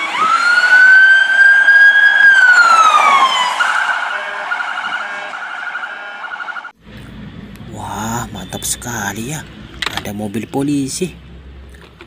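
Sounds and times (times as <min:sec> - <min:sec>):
police siren wailing and pulsing: 0:00.0 - 0:06.8.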